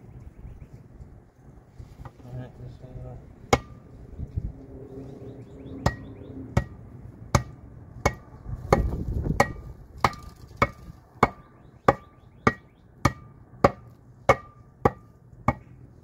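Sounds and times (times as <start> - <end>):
hammer striking wooden board: 7.4 - 15.7.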